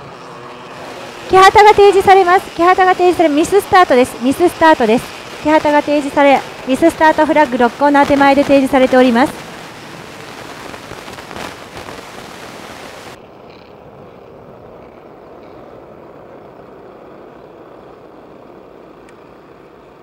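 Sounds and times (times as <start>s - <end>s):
kart engines droning: 0.0s - 10.0s, 13.2s - 20.0s
loud hiss: 0.6s - 13.2s.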